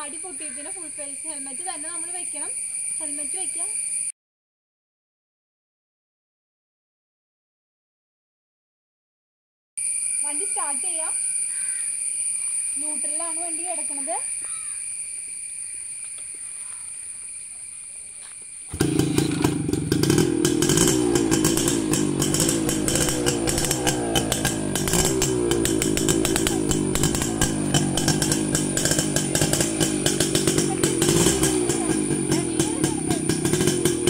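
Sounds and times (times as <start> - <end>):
engine starting and running: 18.7 - 34.0.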